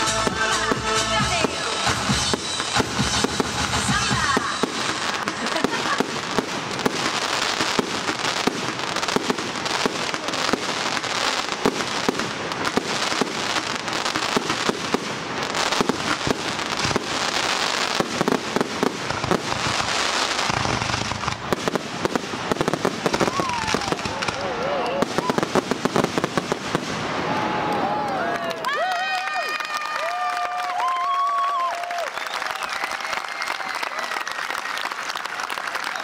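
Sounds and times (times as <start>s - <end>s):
fireworks popping and cracking: 0.0s - 27.9s.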